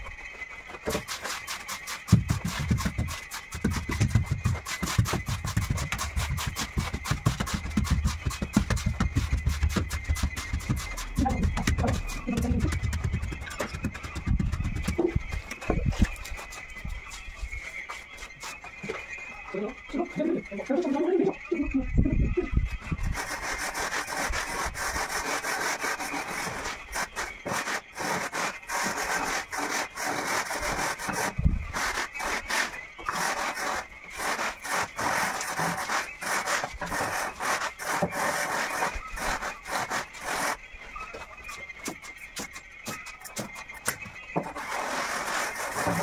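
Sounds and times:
hand tool scraping sand and cement: 0.7 - 16.7, 23.0 - 40.6, 43.3 - 46.0.

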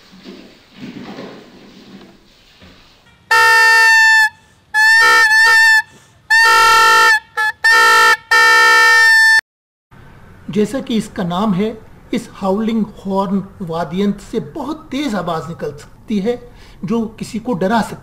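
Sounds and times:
toy horn whistle honking: 3.3 - 9.4.

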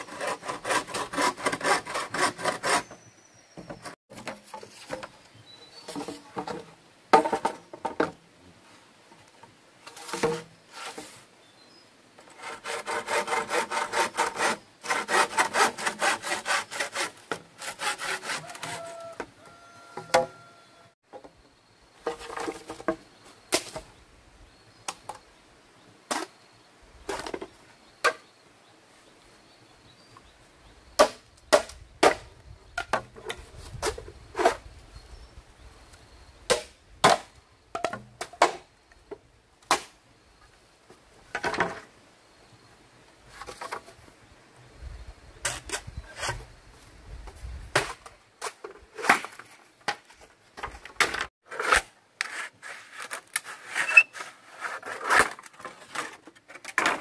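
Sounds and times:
machete chopping bamboo: 31.0 - 32.2, 36.5 - 37.3, 39.7 - 40.0.

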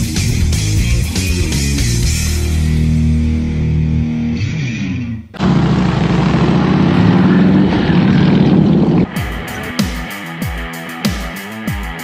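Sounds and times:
rock music with guitar: 0.0 - 5.5, 6.8 - 12.0
motorcycle engine running: 5.4 - 10.0.

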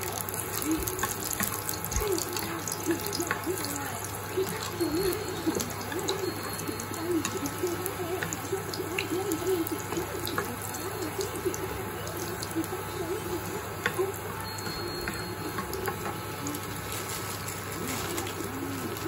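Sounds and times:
garlic sizzling in oil: 0.0 - 19.0
spatula scraping and tapping pan: 13.8 - 16.8.

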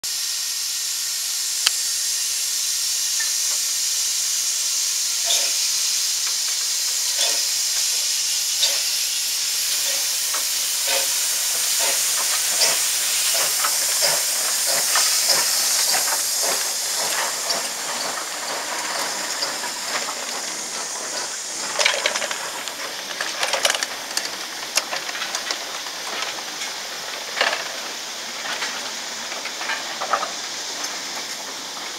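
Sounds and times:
steam hissing: 0.0 - 31.9
train wagons clanking over rail joints: 5.2 - 31.9.

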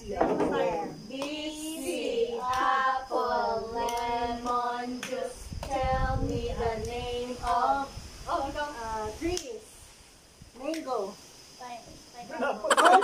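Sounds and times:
voices singing a chant: 0.0 - 9.6.

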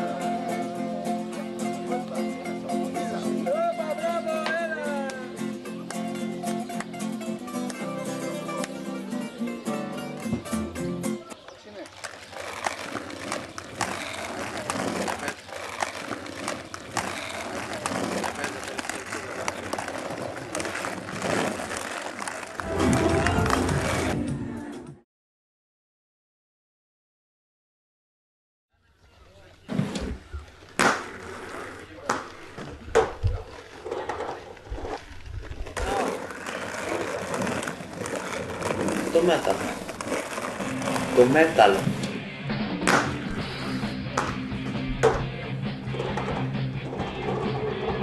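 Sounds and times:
inline skates rolling on pavement: 11.2 - 24.3, 29.0 - 48.0
sharp skate clicks: 11.4 - 22.6, 29.8 - 42.2.

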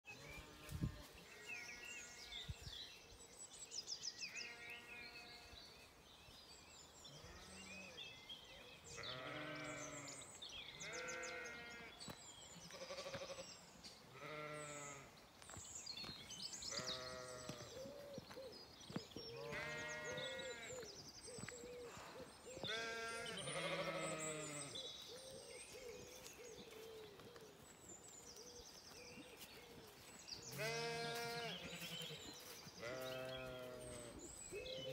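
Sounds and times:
sheep and lambs bleating: 0.1 - 2.5, 4.2 - 5.6, 7.1 - 8.0, 8.9 - 15.2, 16.7 - 17.7, 19.3 - 20.9, 22.6 - 24.8, 30.5 - 34.2.

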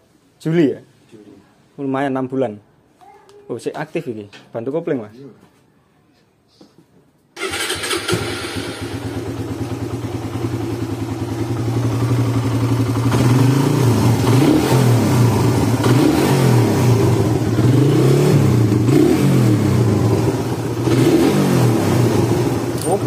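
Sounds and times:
motorcycle engine idling and revving: 7.4 - 23.0.

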